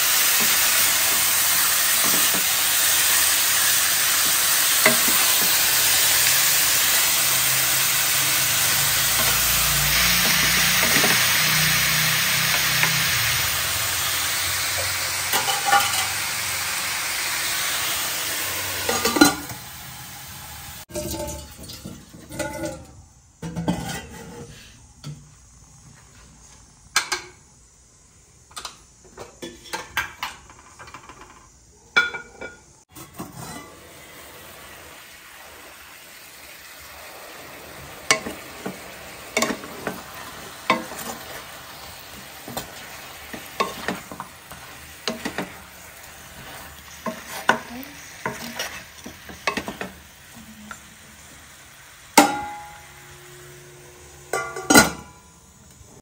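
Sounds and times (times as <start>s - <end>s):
meat sizzling in a frying pan: 0.0s - 22.5s, 33.1s - 56.0s
spatula scraping and knocking pan: 0.2s - 13.4s, 38.0s - 50.0s
dishes and ladle clinking: 18.9s - 19.6s, 20.9s - 24.3s, 47.0s - 50.0s, 54.3s - 55.2s.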